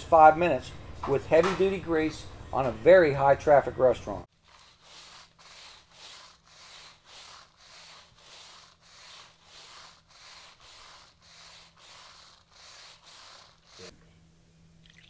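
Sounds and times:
brush scrubbing wet tiled floor: 4.3 - 13.9.

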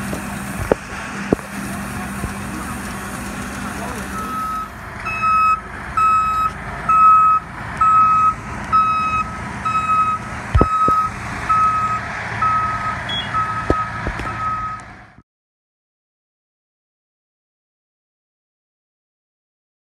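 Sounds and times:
truck engine running: 0.0 - 15.2
reversing alarm beeping: 3.8 - 14.9.

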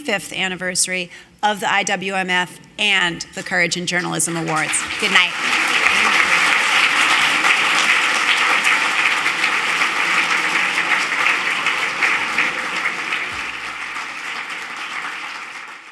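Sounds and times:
audience applauding: 4.0 - 15.9.

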